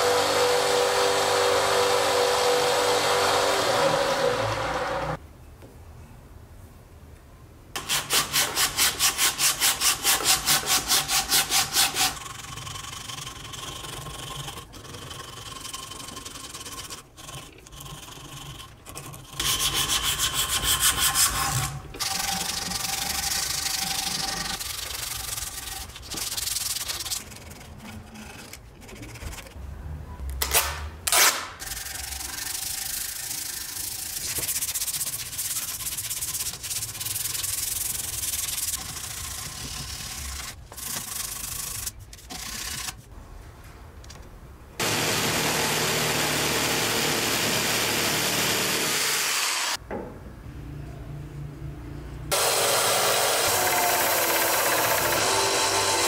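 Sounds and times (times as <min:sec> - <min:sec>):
sandpaper rubbing on wood: 0:07.8 - 0:12.2, 0:19.4 - 0:29.5, 0:32.4 - 0:43.0.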